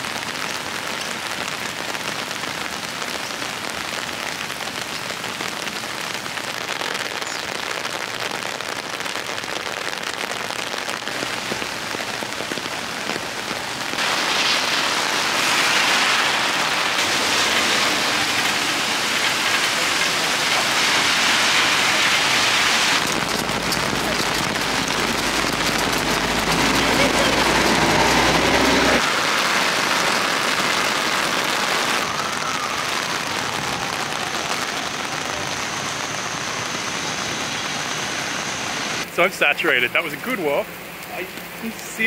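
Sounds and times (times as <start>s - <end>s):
heavy rain on pavement: 0.0s - 42.0s
bus engine rumble: 23.0s - 29.0s.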